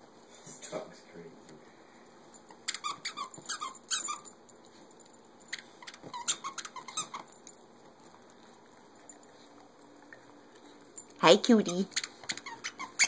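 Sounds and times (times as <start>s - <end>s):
squeaky dog toy squeaking: 2.7s - 4.3s, 5.8s - 7.3s, 11.6s - 13.0s.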